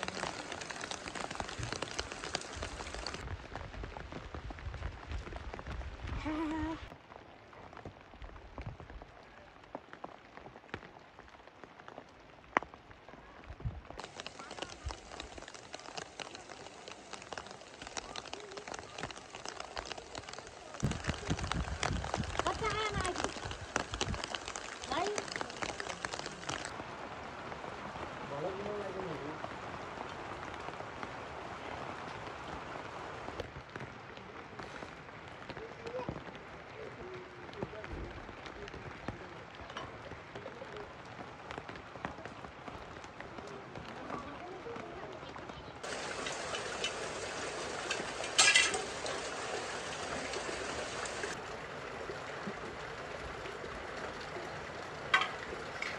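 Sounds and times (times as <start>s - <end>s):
raindrops ticking: 0.0s - 13.1s, 13.9s - 27.6s, 28.9s - 55.9s
rain on leaf litter: 0.0s - 55.9s.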